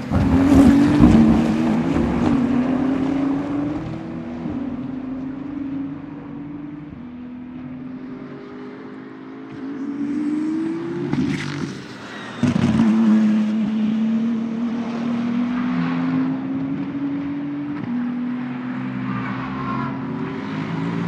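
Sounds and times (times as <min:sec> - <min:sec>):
racing car engine accelerating: 0:00.0 - 0:07.0.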